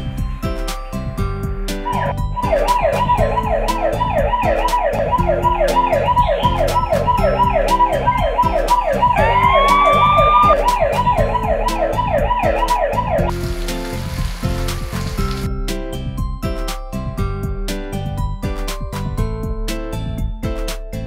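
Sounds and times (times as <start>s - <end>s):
electronic alarm siren whooping: 1.8s - 13.3s
rising alarm tone: 1.8s - 13.4s.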